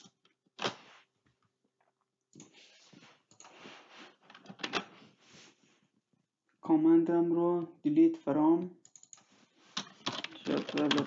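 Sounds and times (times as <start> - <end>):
keyboard typing: 8.8 - 11.0.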